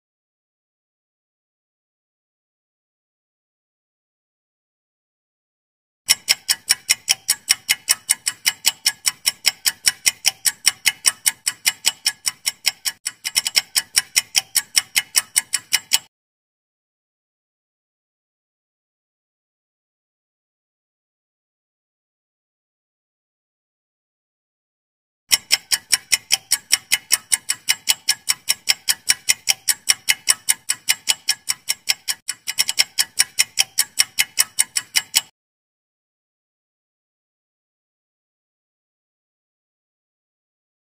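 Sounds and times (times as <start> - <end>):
clock ticking timer: 6.1 - 16.1, 25.3 - 35.4.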